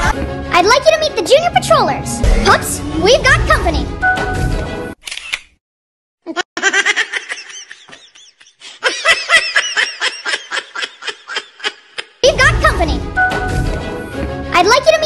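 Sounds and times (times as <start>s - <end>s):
high-pitched laughter: 6.3s - 12.2s.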